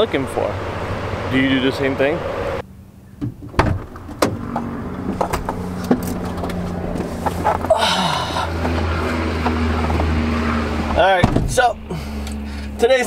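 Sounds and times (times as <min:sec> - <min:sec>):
van engine idling: 0:00.0 - 0:10.3
knocks and rustles of climbing in: 0:03.2 - 0:07.8.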